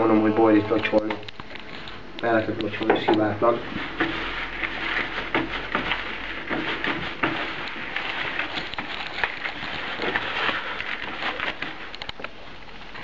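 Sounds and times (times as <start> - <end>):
hands kneading wet bait: 3.2 - 13.0
small knocks in plastic bucket: 5.1 - 7.7.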